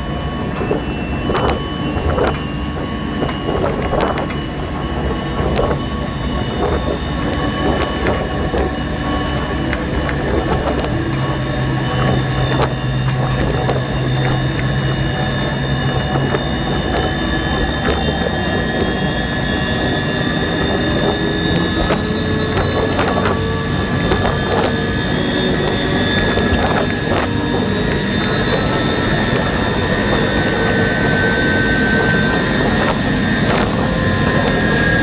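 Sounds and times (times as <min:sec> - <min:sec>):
low hum: 0:00.0 - 0:35.0
rising tones: 0:00.0 - 0:35.0
wind: 0:00.0 - 0:35.0
wind turbine machinery noise: 0:00.0 - 0:35.0
sharp clicks: 0:06.6 - 0:11.4, 0:20.5 - 0:30.2.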